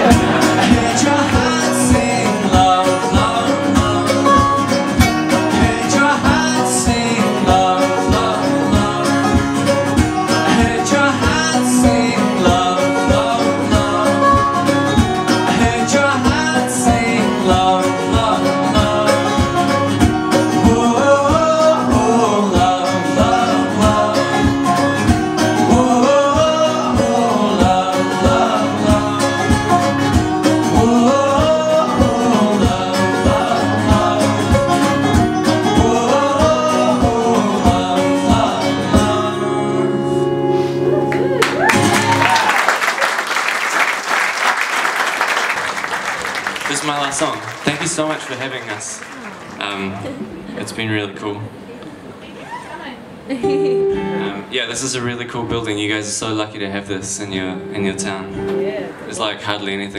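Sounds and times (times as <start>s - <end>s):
man singing: 0.0s - 40.4s
picked banjo: 0.0s - 42.2s, 53.4s - 55.0s
strummed acoustic guitar: 0.0s - 42.2s, 53.4s - 59.9s.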